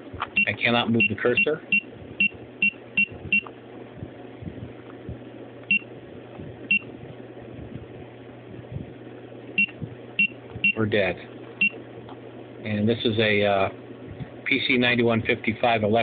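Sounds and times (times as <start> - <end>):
keypad beeps: 0.4 - 3.5, 5.7 - 5.9, 6.7 - 6.9, 9.6 - 10.8.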